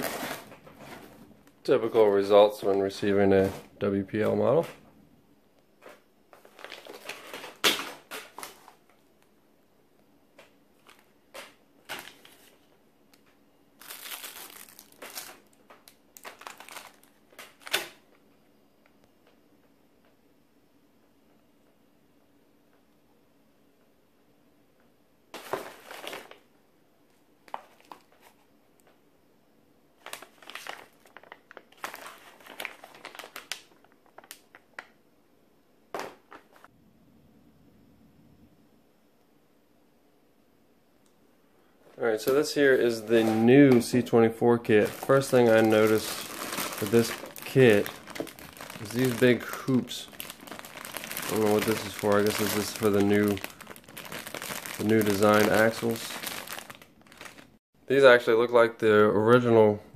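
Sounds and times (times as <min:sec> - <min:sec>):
plastic packaging crinkling: 0:00.0 - 0:04.4, 0:05.8 - 0:08.9, 0:10.8 - 0:18.0, 0:25.4 - 0:26.4, 0:30.0 - 0:35.0, 0:44.7 - 0:57.6.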